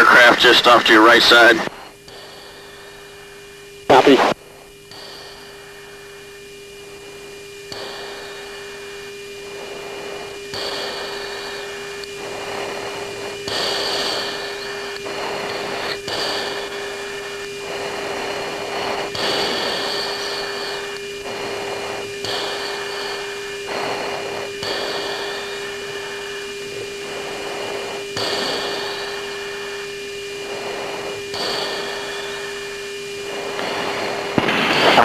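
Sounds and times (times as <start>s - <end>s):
bursts of radio hiss: 0.0s - 35.0s
steady radio hum: 0.0s - 35.0s.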